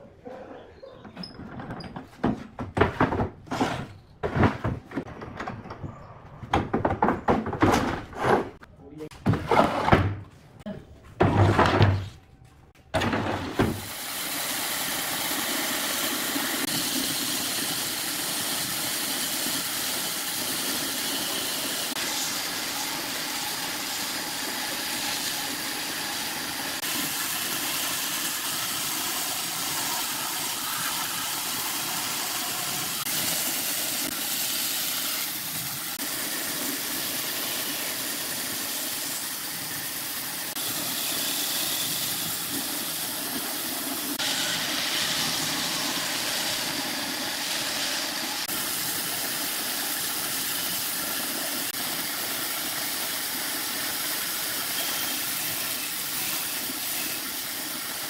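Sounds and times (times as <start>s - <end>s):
woodworking power tools hissing: 13.5s - 58.0s.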